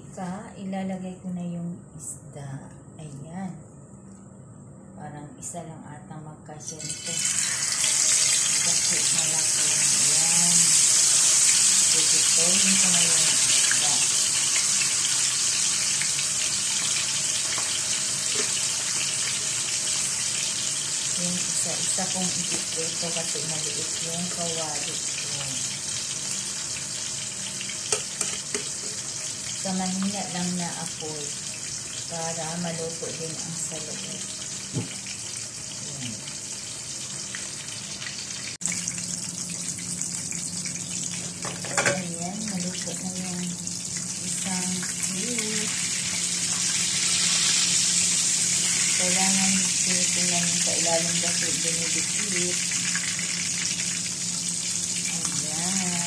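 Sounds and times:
steady low hum: 0.0s - 7.5s
fish sizzling in oil: 6.8s - 56.0s.

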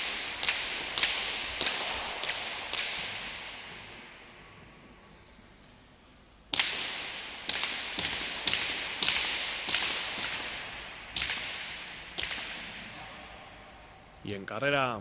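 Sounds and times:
ball smacks echoing in hall: 0.0s - 14.2s.

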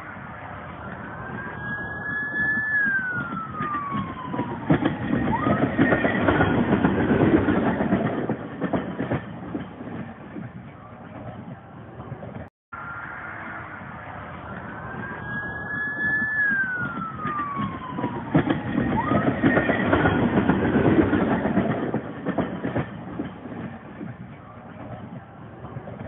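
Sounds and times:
rail car wheels rumbling on rails: 0.0s - 12.5s, 13.3s - 26.0s
high tone sliding down: 12.8s - 18.1s.

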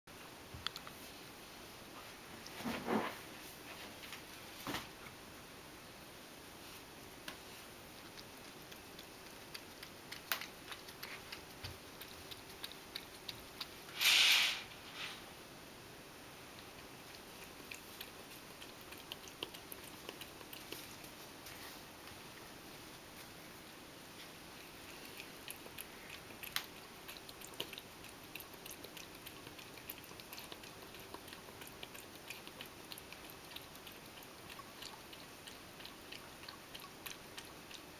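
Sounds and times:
cat lapping milk: 7.4s - 14.0s, 16.5s - 21.9s, 24.2s - 37.9s.

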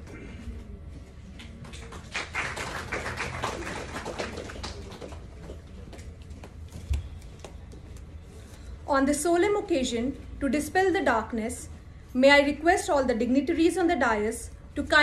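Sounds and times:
small audience clapping: 1.4s - 6.6s.

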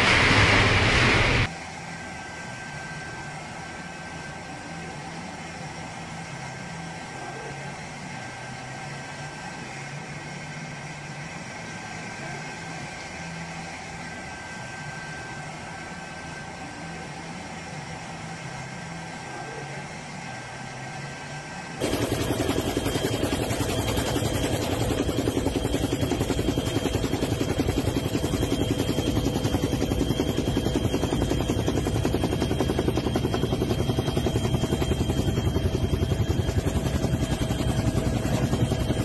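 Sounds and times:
faint engine whines: 0.0s - 39.0s
helicopter rotor chopping: 21.8s - 39.0s.

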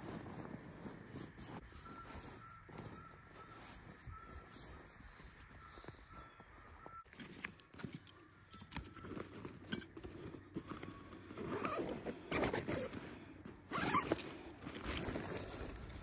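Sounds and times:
nylon fabric rustling and scraping: 0.0s - 5.4s, 9.0s - 16.0s
light metal clicks of tent stakes: 7.1s - 10.5s.

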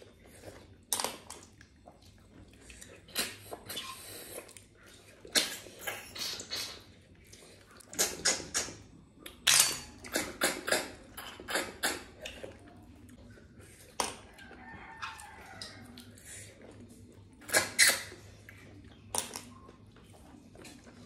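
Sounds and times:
wet slurping: 1.9s - 8.9s.

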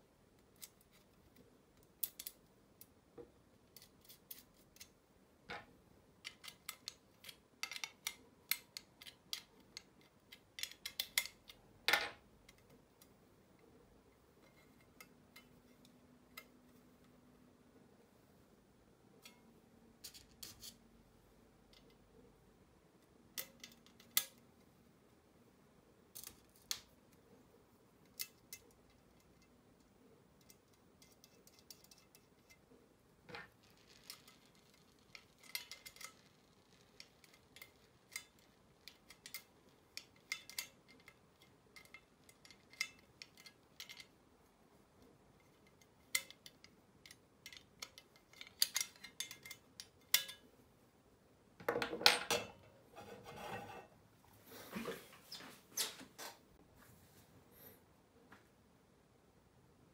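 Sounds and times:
scraping: 52.9s - 56.2s.

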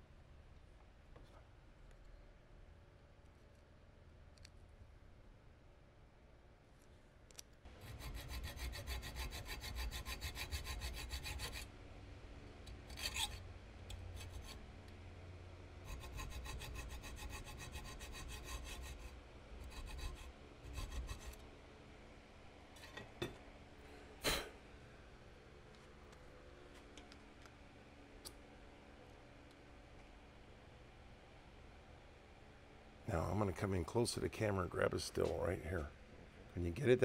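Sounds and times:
hacksaw sawing metal: 7.8s - 11.7s, 12.9s - 13.4s, 15.9s - 21.4s.

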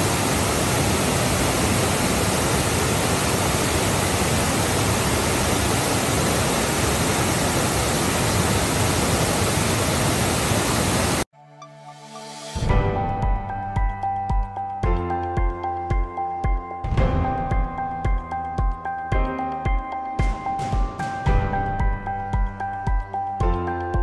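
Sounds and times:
waterfall rushing: 0.0s - 11.3s.

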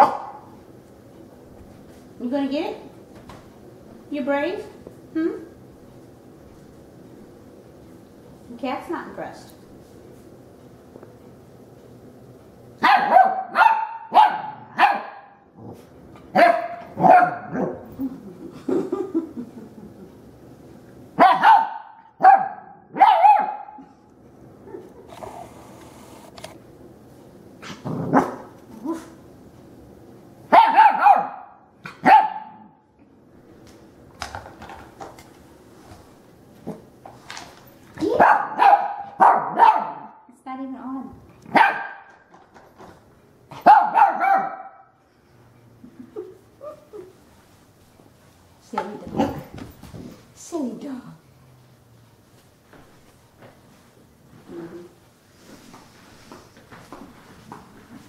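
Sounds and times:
puppy barking: 0.0s - 0.5s, 12.8s - 15.4s, 16.4s - 17.8s, 21.2s - 23.9s, 28.1s - 29.0s, 30.5s - 32.8s, 38.1s - 40.2s, 41.5s - 42.2s, 43.6s - 44.9s.

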